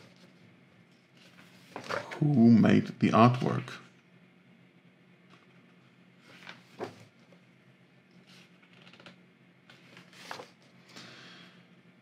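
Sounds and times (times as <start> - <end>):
book pages turning: 1.2 - 2.3, 6.2 - 7.2, 8.2 - 10.8.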